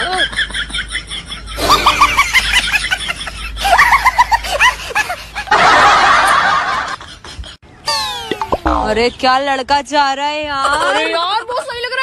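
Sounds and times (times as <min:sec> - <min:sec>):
man snickering and giggling: 0:00.0 - 0:05.6.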